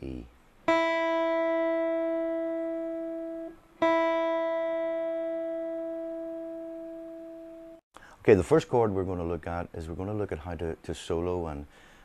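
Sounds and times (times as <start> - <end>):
electric guitar string plucked: 0.7 - 7.8.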